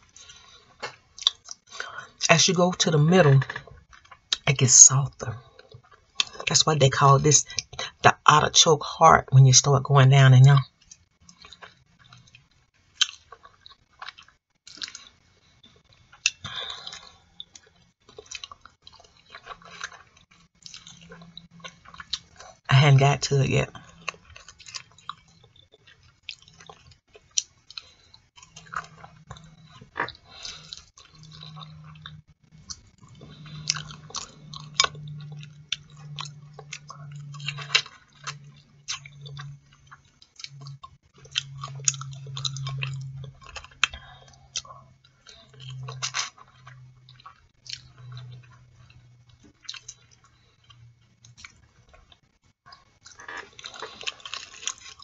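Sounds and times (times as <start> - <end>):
chewing and mouth clicks: 0.0 - 2.2, 3.1 - 8.4, 10.5 - 22.7, 23.7 - 55.0
low hum: 27.9 - 52.4.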